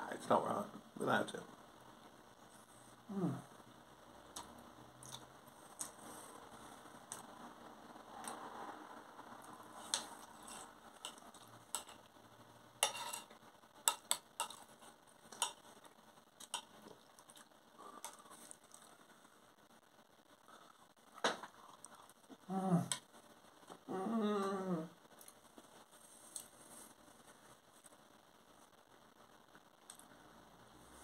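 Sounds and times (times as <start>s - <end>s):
person chewing: 4.3s - 6.0s, 9.8s - 12.0s, 13.9s - 19.0s, 20.5s - 22.2s
spoon scraping on plate: 12.8s - 14.7s.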